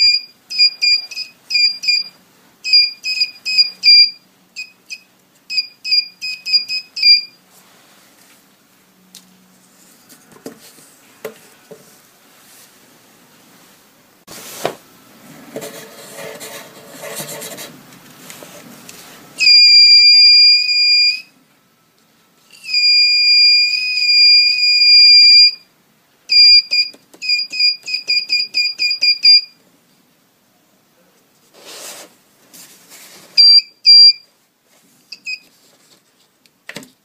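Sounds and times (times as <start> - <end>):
pencil scratching on paper: 15.6 - 17.8.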